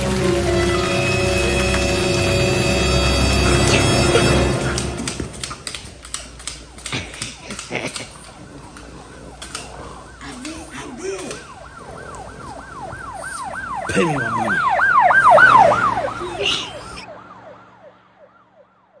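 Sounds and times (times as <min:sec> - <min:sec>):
emergency vehicle siren yelping: 0:00.0 - 0:05.7, 0:08.1 - 0:19.0.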